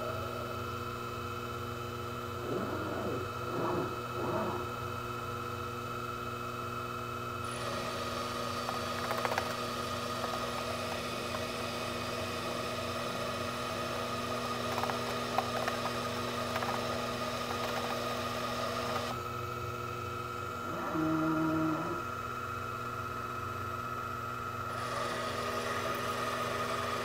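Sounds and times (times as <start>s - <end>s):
lathe motor hum and whine: 0.0s - 27.0s
lathe tool cutting hiss: 7.5s - 9.0s, 24.7s - 27.0s.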